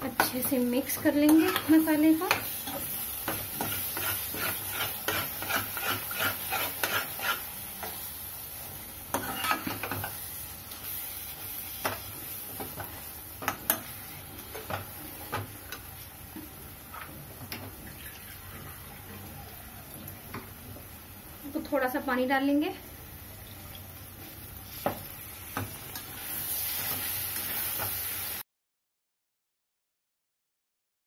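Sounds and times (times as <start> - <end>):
pan sizzling: 0.0 - 28.4
spatula scraping and knocking pan: 0.1 - 8.0, 9.1 - 10.2.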